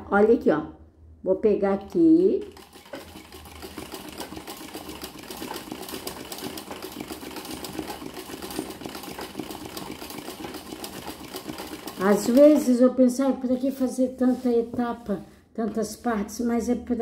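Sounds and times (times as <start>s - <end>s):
sewing machine stitching: 1.8s - 13.4s.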